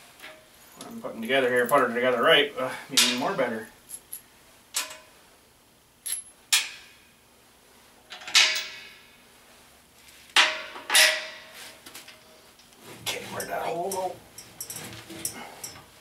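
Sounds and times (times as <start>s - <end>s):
metal bolts clanking on bracket: 8.1s - 9.0s, 10.4s - 11.4s.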